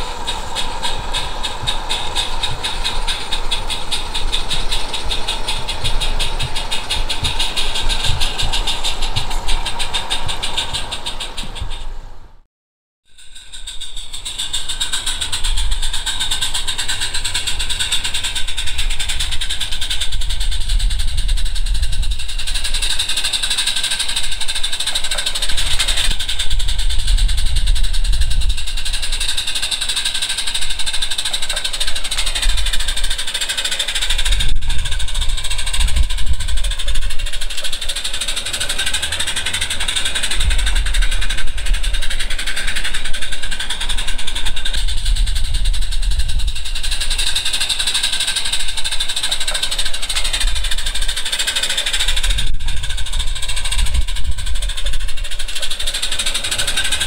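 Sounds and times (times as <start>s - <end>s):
steam locomotive hissing: 0.0s - 12.4s, 13.2s - 57.0s
low rumble: 19.8s - 22.6s, 40.0s - 47.4s.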